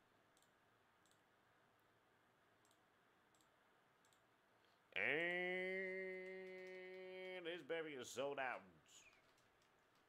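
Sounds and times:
faint keyboard and mouse clicks: 0.3 - 1.3, 2.6 - 4.8, 6.1 - 7.6, 9.0 - 10.0.

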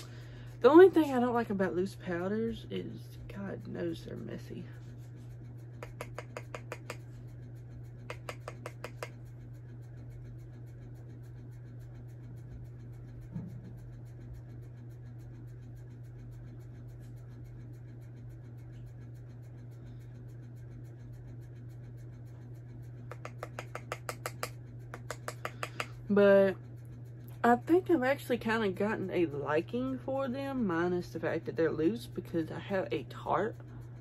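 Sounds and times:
low hum: 0.0 - 34.0
makeup brush tapping in jar: 5.8 - 7.0, 8.1 - 9.2, 23.1 - 26.0.

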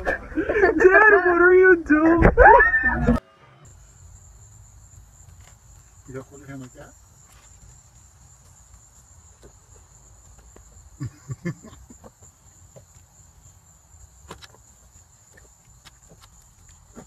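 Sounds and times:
crickets chirring: 3.6 - 17.0.

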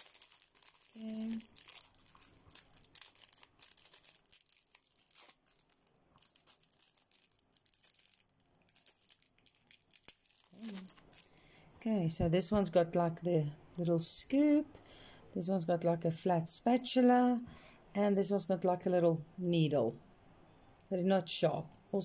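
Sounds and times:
plastic bags crinkling and tearing: 0.0 - 11.5.

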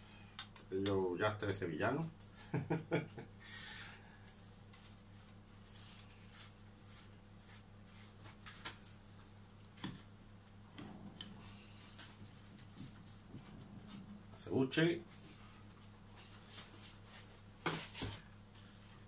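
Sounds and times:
low steady hum: 0.0 - 19.0
faint rustling and scraping: 4.1 - 19.0.

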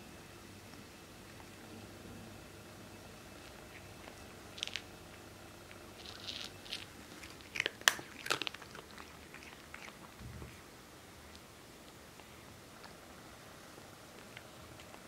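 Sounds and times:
cat crunching food: 3.3 - 10.2.

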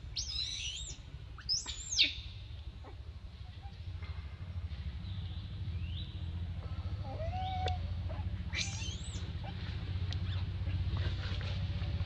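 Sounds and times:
low steady rumble: 0.0 - 12.0
baby monkey squealing: 0.2 - 2.2, 7.1 - 9.6.

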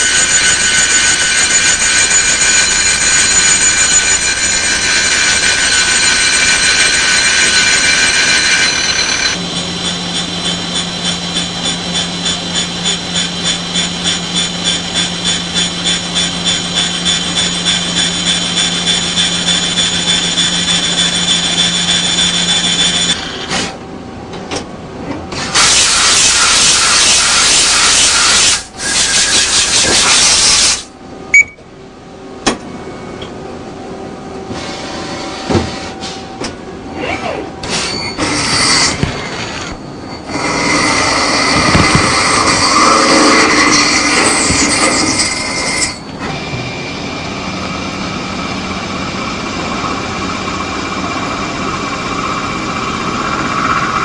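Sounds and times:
pulsing spindle hum: 0.0 - 23.2
grinding wheel whining: 0.0 - 23.4, 38.0 - 54.0
loud steady hiss: 25.5 - 30.9.

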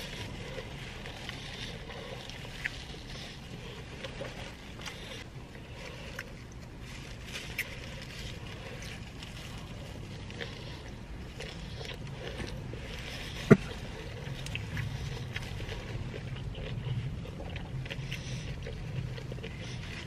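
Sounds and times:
person chewing sandwich: 0.0 - 20.0
car cabin rumble: 12.0 - 18.1.

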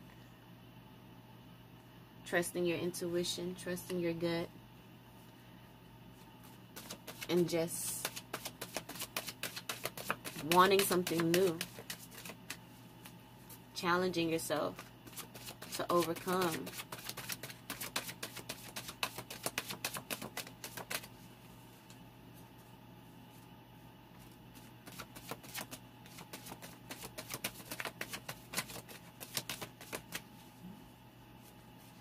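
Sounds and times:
cards being shuffled: 6.8 - 7.3, 8.0 - 13.2, 14.7 - 21.1, 24.2 - 30.4.

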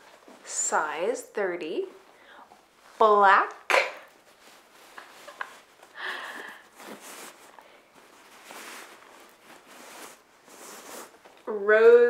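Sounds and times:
cloth bag rustling: 4.1 - 11.6.

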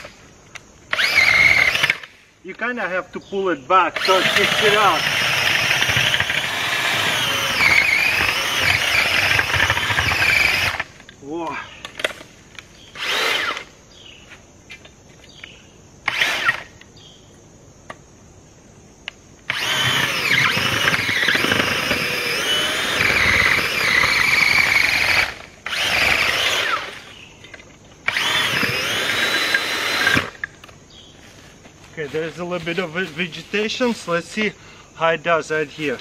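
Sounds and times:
earth auger motor whining: 0.9 - 2.1, 4.0 - 11.0, 12.9 - 13.7, 16.1 - 16.8, 19.5 - 30.5.

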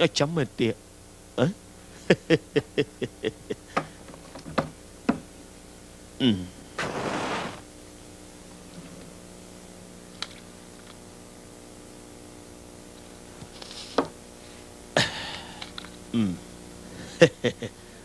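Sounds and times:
faint steady hum: 0.0 - 18.0
breathy puff: 6.8 - 7.6.

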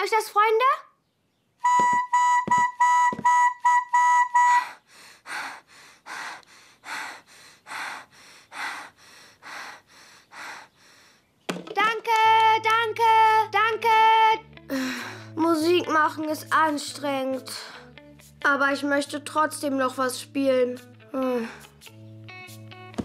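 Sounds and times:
toy trumpet toots: 1.6 - 4.7
low thumps: 1.7 - 3.6
out-of-breath panting: 4.4 - 11.4, 14.8 - 15.4.

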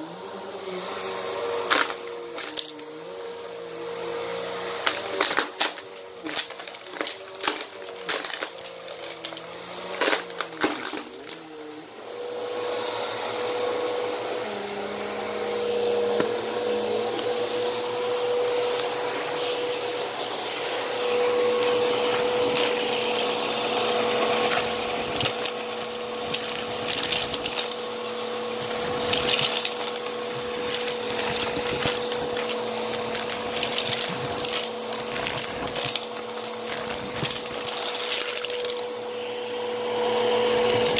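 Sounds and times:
vacuum cleaner motor whining: 0.0 - 40.9
coins rattling up vacuum hose: 1.6 - 3.0, 4.2 - 11.4, 21.7 - 38.9.

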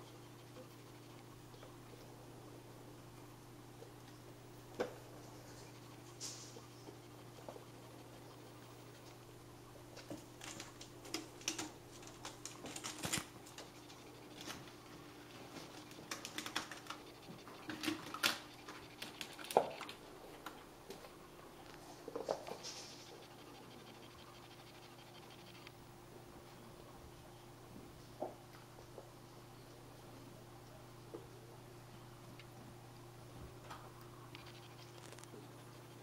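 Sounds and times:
faint steady hum: 0.0 - 36.0
kitten claws scratching and clicking: 10.0 - 20.7, 22.3 - 25.8, 34.3 - 36.0.

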